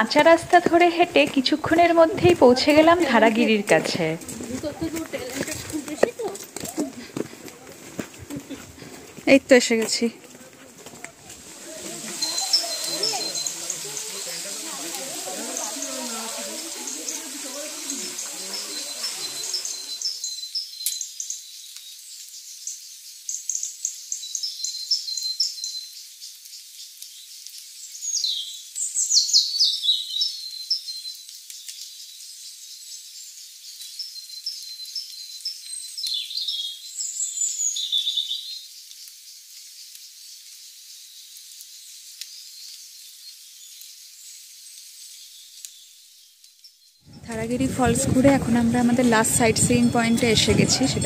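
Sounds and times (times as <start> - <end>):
birds chirping and calling: 10.9 - 26.3, 47.0 - 51.0
sweeping falling bird calls: 11.0 - 51.0
high insect trill: 11.4 - 25.3.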